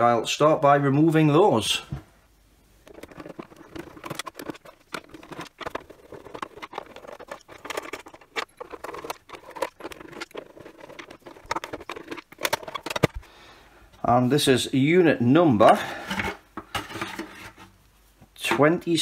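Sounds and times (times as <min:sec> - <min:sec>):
plastic case being handled: 0:02.9 - 0:13.3.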